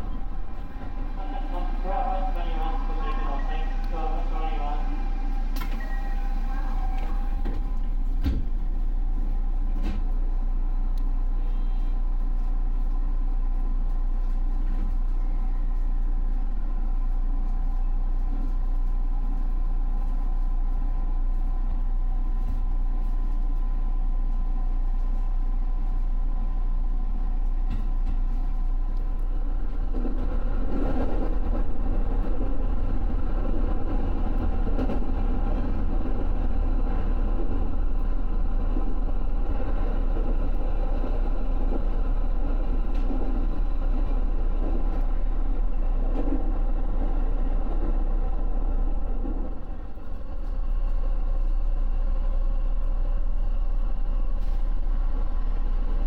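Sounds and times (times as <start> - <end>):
train rumbling: 0.0 - 56.0.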